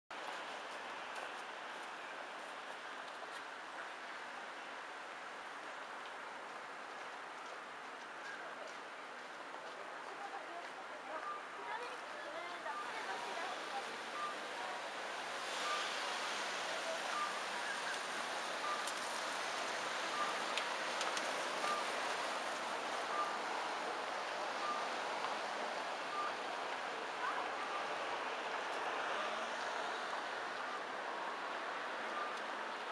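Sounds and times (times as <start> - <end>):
traffic hiss: 0.2 - 32.9
faint short beep: 11.1 - 14.5, 15.6 - 16.1, 16.8 - 18.9, 20.1 - 20.5, 21.6 - 22.0, 23.1 - 23.6, 24.6 - 25.0, 26.1 - 26.5, 27.2 - 32.5.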